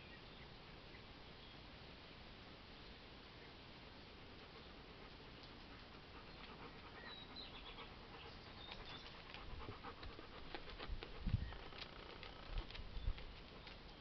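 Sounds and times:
dog panting: 4.4 - 13.8.

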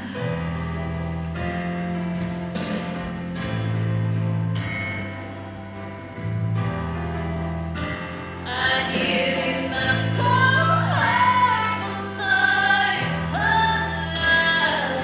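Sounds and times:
person singing: 8.5 - 15.0.

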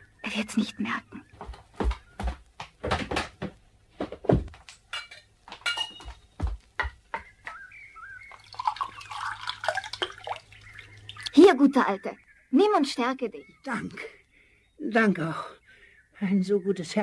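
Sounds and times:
crockery clinking: 4.9 - 6.2
wine pouring into cup: 8.3 - 11.2.

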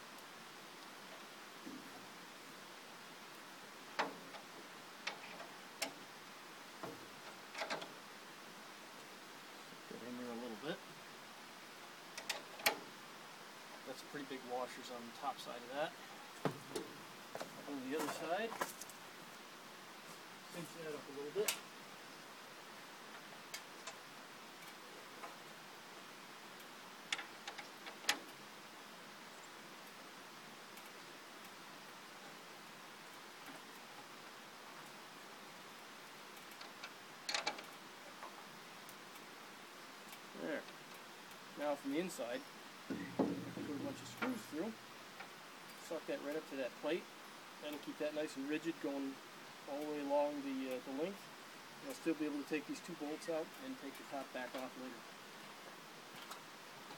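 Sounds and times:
plastic panel clicks and knocks: 42.9 - 43.9.

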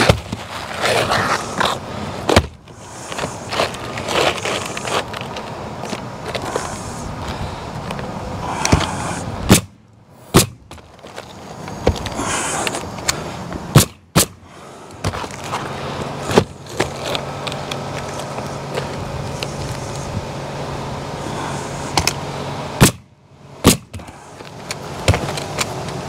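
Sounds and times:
shingles rustling and scraping: 0.0 - 9.6, 10.2 - 20.2, 23.9 - 26.0
roofing nailer firing nails: 9.5 - 10.8, 13.7 - 14.4, 22.8 - 23.0, 23.6 - 24.2.

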